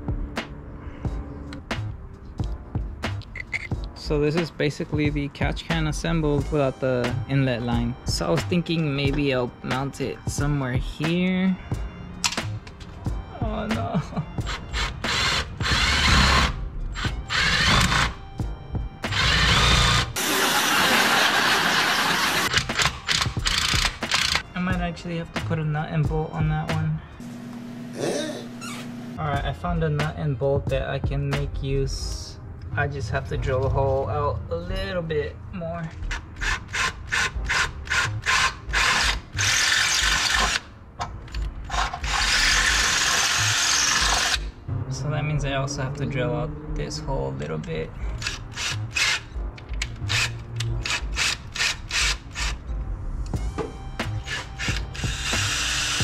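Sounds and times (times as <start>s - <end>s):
cordless drill boring metal: 14.4s - 18.2s, 19.1s - 20.8s, 22.1s - 24.4s, 36.1s - 40.7s, 41.7s - 44.4s, 48.2s - 52.6s, 54.2s - 56.0s.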